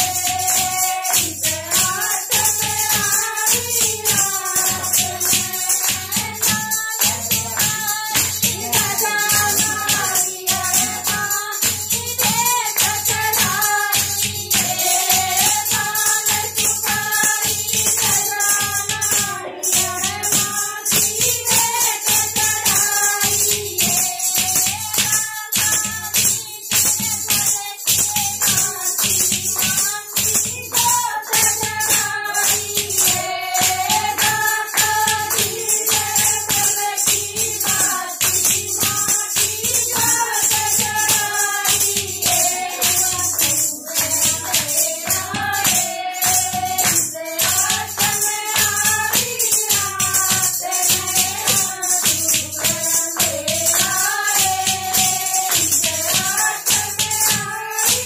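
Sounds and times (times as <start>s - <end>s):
clay pot drum: 0.0s - 23.7s
hand claps: 0.0s - 58.0s
jingling clappers and rattles: 0.0s - 58.0s
woman singing: 0.0s - 58.0s
women singing together: 0.0s - 58.0s.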